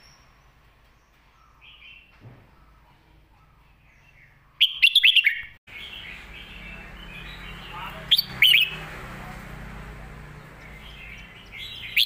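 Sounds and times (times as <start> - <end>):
bird singing whistled notes: 0.0 - 2.9, 3.5 - 8.8, 10.7 - 12.0.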